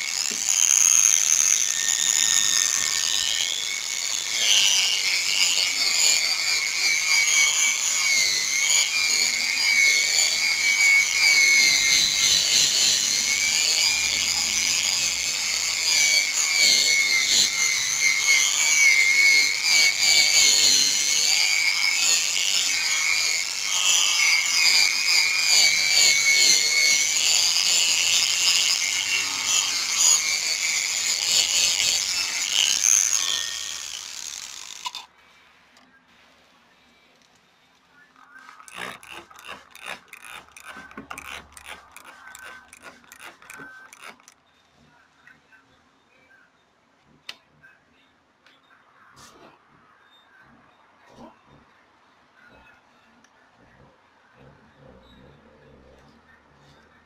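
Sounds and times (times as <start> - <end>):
electric drill sanding whine: 0.0 - 35.0, 38.4 - 44.4.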